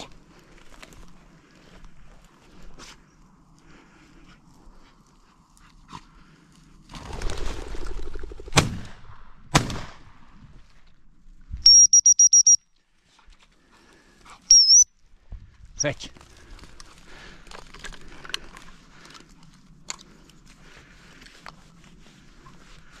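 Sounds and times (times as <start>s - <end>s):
bird wings whirring: 6.9s - 8.6s
shotgun shots: 8.6s - 10.0s
dog whistle pips: 11.6s - 12.6s, 14.5s - 14.9s.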